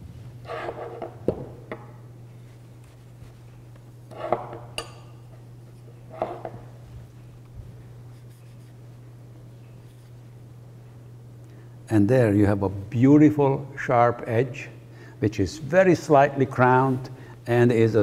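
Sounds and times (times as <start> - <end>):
blade scraping on sharpening stone: 0.5 - 1.1.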